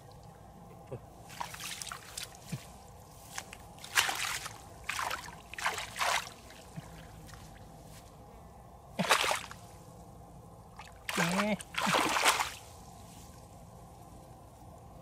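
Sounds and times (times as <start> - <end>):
hands splashing in muddy water: 3.8 - 6.8, 9.0 - 9.6, 10.8 - 12.6.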